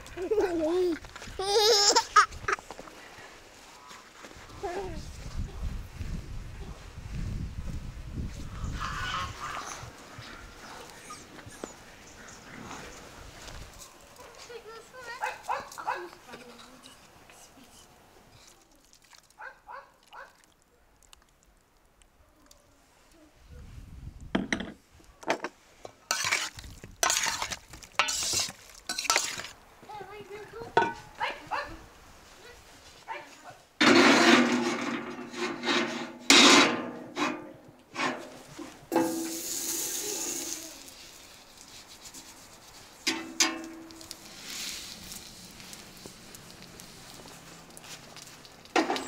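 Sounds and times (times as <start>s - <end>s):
fat sizzling on griddle: 26.1s - 29.6s, 38.9s - 49.0s
tongs scraping griddle: 26.1s - 29.6s, 33.8s - 41.3s
metal tongs clanking on plate: 28.0s - 29.5s.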